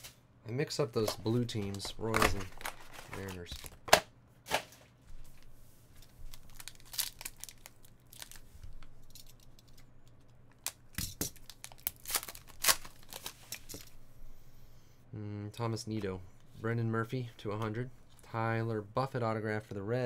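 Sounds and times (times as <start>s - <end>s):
foil wrappers crinkling and tearing: 1.6s - 3.8s, 6.0s - 9.4s, 10.6s - 13.9s.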